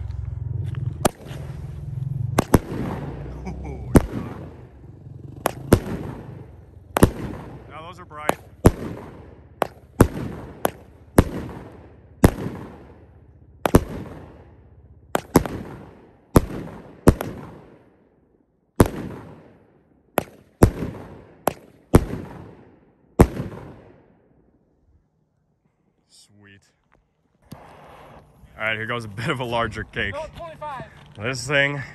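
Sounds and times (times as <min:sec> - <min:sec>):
firework bangs with echoing rumble: 0:00.0 - 0:24.5.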